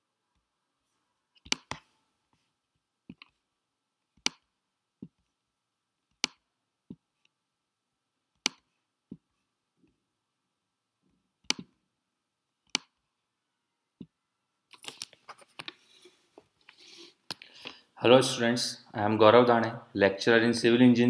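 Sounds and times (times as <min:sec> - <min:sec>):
computer mouse clicking: 0:01.4 - 0:01.9, 0:11.4 - 0:11.7.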